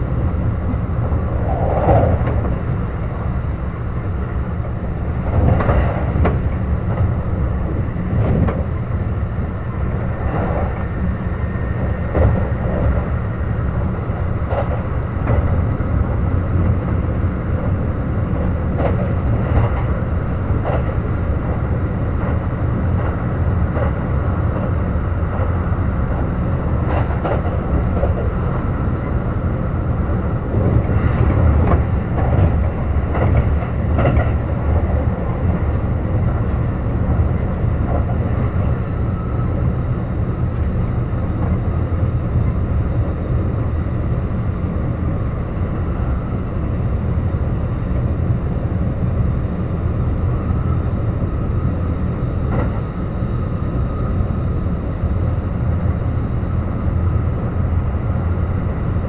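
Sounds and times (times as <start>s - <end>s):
train wheels rumbling on rail: 0.0s - 59.0s
wheels clacking over rail joints: 11.9s - 41.8s.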